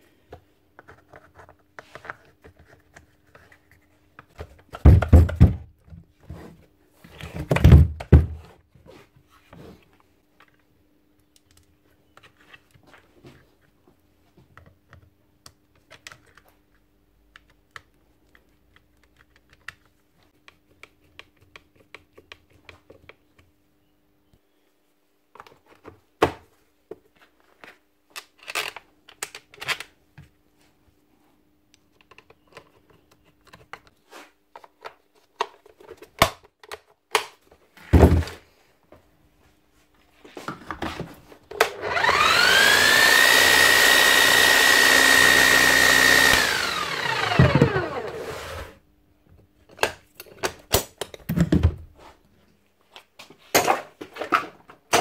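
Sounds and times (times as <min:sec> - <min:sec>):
electric motor whining: 0:41.8 - 0:48.7.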